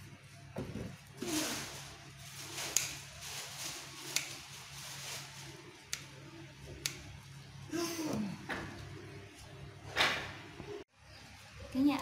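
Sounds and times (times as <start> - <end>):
basil stems rustling: 1.2 - 5.8
scissors snipping stems: 2.7 - 3.0, 4.1 - 4.4, 6.8 - 7.1.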